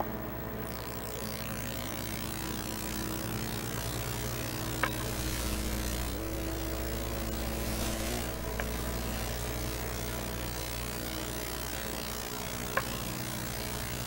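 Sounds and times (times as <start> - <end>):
faint mechanical whir: 0.0 - 14.0
tape hum and hiss: 0.0 - 14.0
sharp clicks: 0.7 - 6.2, 8.0 - 8.8, 10.5 - 14.0.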